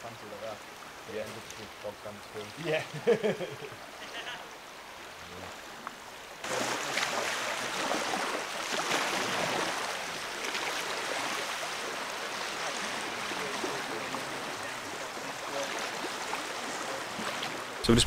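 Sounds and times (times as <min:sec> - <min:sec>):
small waves lapping on pebbles: 0:03.9 - 0:17.8.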